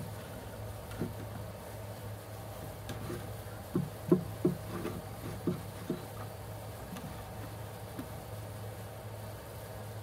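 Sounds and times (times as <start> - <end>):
saw knocking against wood: 2.9 - 6.3.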